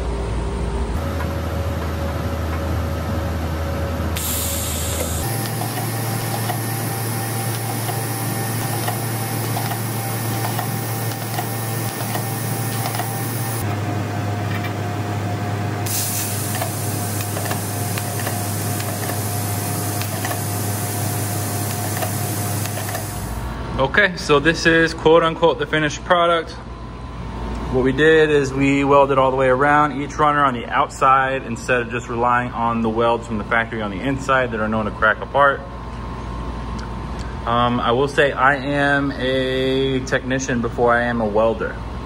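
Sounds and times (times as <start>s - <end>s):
welding arc hissing: 4.2s - 13.6s, 15.8s - 23.5s.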